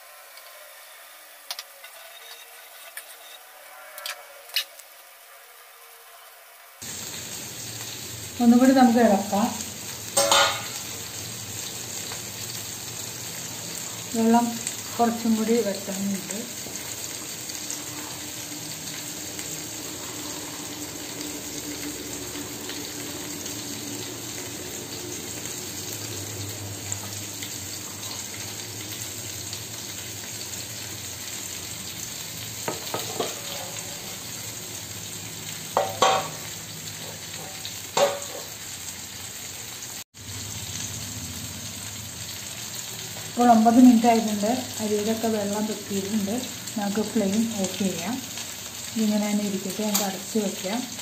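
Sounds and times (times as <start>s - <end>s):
chicken sizzling in oil: 0.0s - 51.0s.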